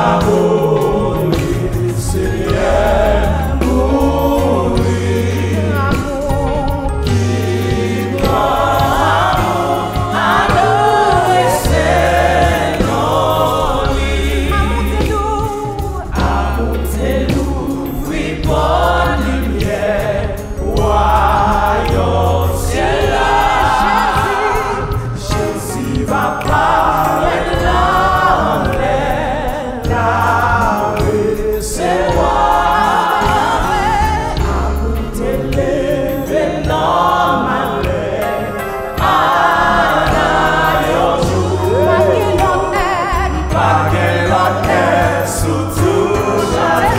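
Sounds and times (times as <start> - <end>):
backing voices: 0.0 - 46.9
band playing deep bass notes: 0.0 - 46.9
woman singing into a microphone: 14.5 - 16.3, 41.7 - 43.6.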